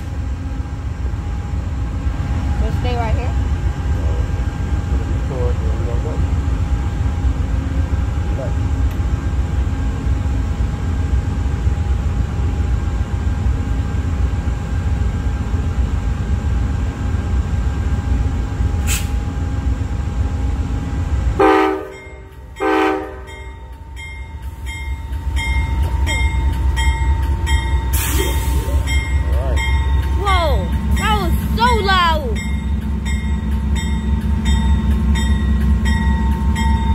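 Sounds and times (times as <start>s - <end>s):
diesel locomotive idling: 0.0s - 36.9s
train horn blasts: 21.4s - 23.5s
locomotive bell ringing: 21.8s - 36.9s.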